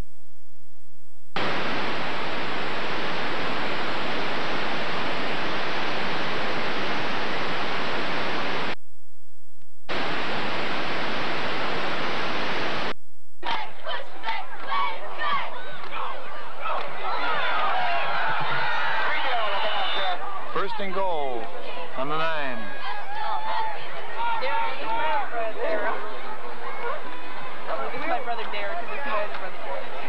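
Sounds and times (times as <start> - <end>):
videotape static hiss: 1.3 - 8.8, 9.6 - 14.0
crowd voices and shouting: 13.4 - 30.0.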